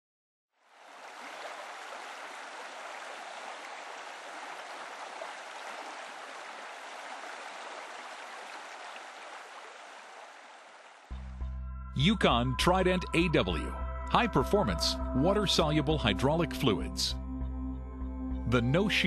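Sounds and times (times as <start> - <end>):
water rushing and splashing: 0.6 - 11.2.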